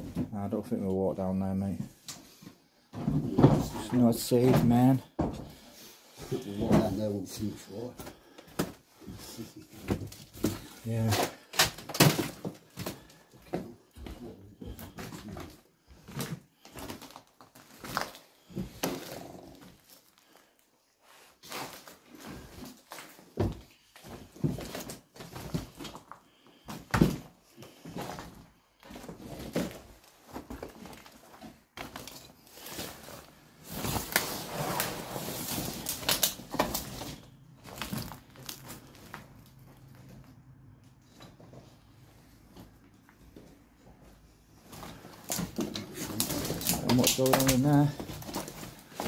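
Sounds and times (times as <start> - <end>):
footsteps crunching on broken glass: 10.4 - 19.1, 35.7 - 39.4, 44.7 - 49.0.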